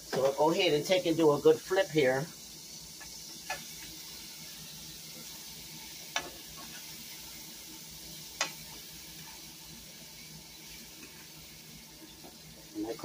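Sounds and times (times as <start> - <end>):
livers sizzling in oil: 0.0 - 13.0
sharp clicks in pot: 6.1 - 6.4, 8.4 - 8.6.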